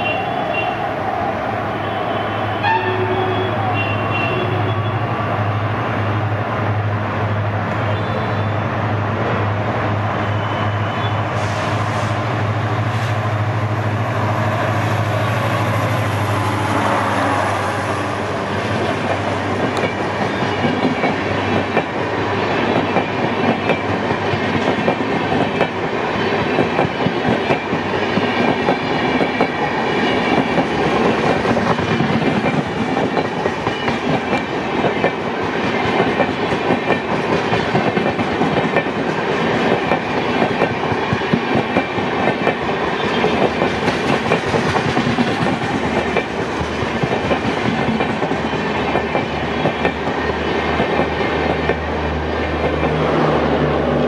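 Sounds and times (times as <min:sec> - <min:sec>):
diesel locomotive engine drone: 0:00.0 - 0:54.0
train wheels clacking over rail joints: 0:22.6 - 0:51.9.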